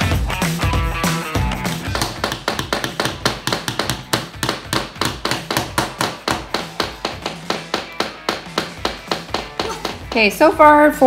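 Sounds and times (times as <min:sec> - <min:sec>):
small hammers tapping nails into wood: 0:01.8 - 0:10.4.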